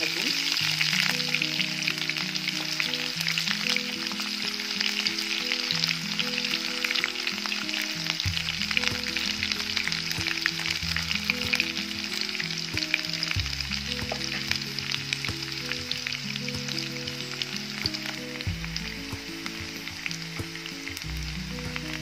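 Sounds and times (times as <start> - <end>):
onions sizzling in hot oil: 0.0 - 22.0
small crackles of frying: 0.0 - 22.0.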